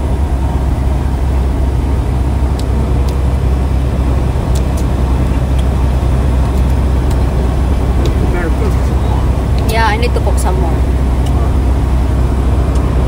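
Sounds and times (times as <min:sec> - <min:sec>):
truck engine and road drone: 0:00.0 - 0:13.0.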